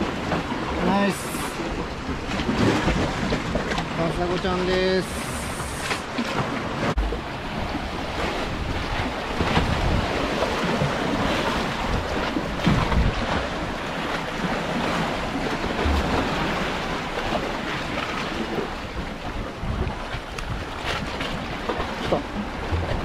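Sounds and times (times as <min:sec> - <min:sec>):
seawater surging and sloshing: 0:00.0 - 0:23.0
wind buffeting microphone: 0:06.9 - 0:23.0.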